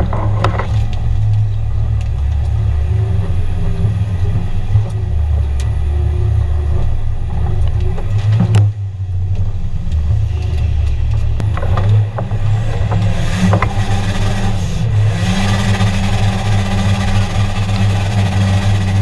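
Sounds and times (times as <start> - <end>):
engine running under load: 0.0 - 19.0.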